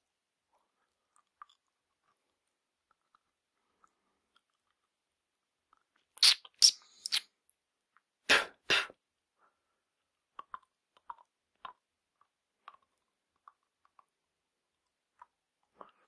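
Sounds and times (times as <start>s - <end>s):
wet mouth sounds: 6.1s - 7.3s, 8.3s - 9.0s.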